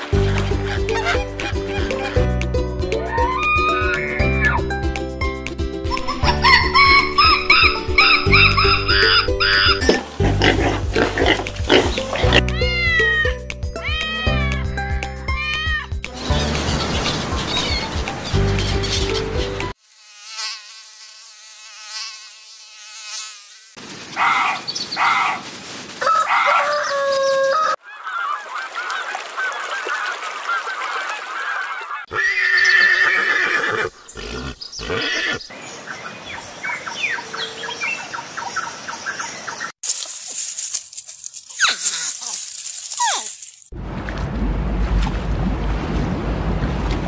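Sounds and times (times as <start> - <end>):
gulls calling: 2.9 - 4.7, 5.9 - 19.7, 26.3 - 39.8
geese honking: 6.2 - 12.4.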